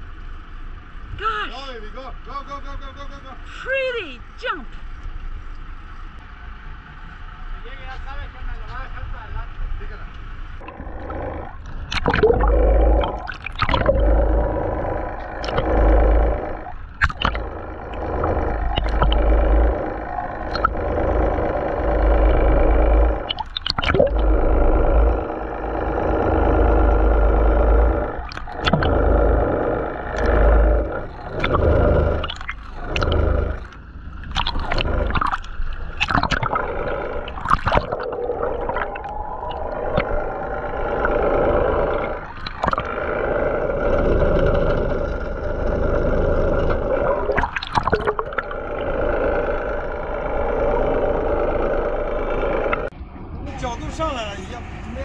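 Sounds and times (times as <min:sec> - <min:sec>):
boat engine drone through water: 0:00.0 - 0:03.6, 0:04.3 - 0:55.0
water rushing and bubbling underwater: 0:10.6 - 0:53.0.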